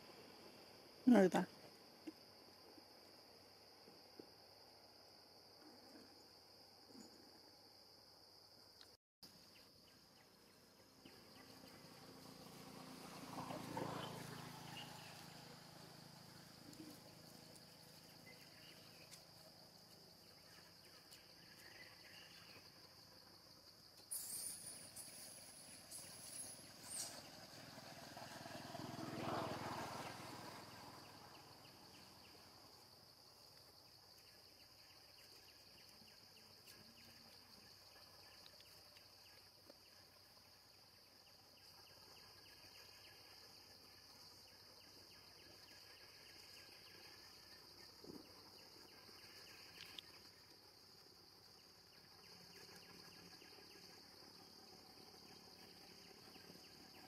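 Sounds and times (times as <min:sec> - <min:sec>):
high-pitched insect drone: 0:21.2 - 0:27.8.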